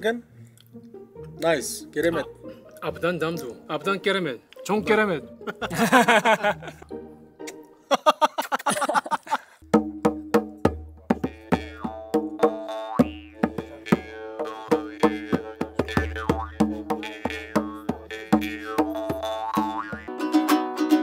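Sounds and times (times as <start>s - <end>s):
frame drum beaten by hand: 9.6s - 20.1s.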